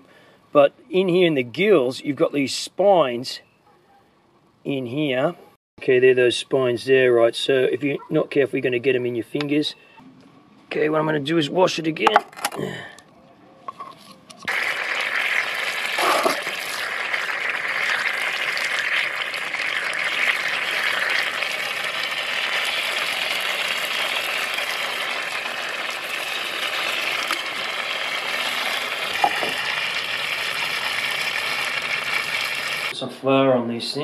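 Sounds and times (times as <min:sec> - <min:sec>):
water from hose splashing: 0:14.5 - 0:32.9.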